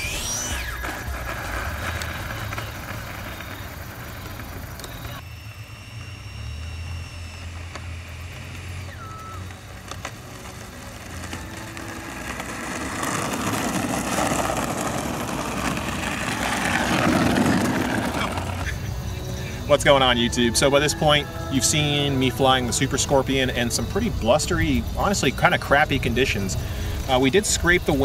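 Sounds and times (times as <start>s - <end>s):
rush of noise: 0.0s - 19.8s.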